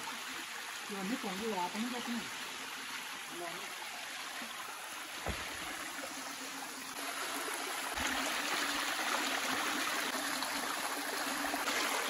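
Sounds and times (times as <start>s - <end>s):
water trickling over stone: 0.0s - 12.0s
soft thump: 5.2s - 5.8s.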